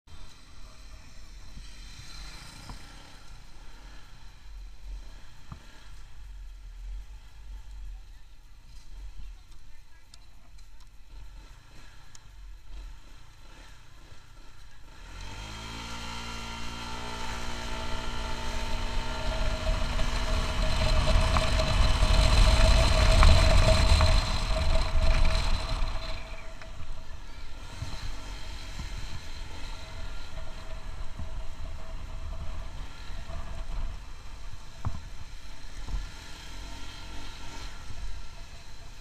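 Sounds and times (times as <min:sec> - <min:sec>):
scooter engine accelerating: 0:00.2 - 0:08.0, 0:11.0 - 0:39.0
wind noise: 0:17.2 - 0:27.0.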